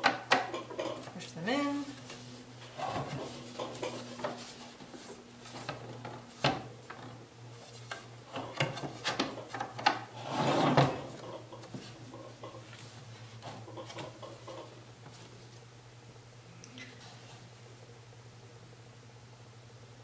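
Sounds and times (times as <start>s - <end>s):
plastic rubbing scrapes: 10.1s - 12.0s.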